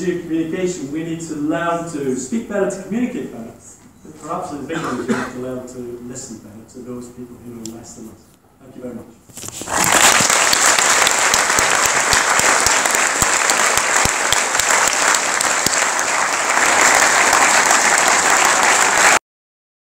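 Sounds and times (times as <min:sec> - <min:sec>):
audience applauding: 0:09.6 - 0:19.2.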